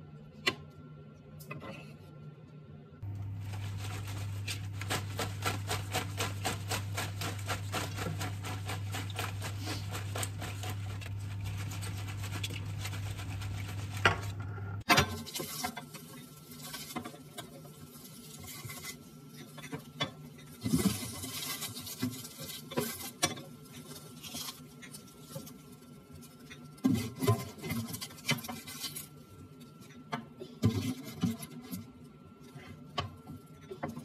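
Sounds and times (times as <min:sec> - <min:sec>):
low steady hum: 0:00.0 - 0:34.0
lettuce rattling in colander: 0:03.1 - 0:14.4, 0:20.5 - 0:29.1.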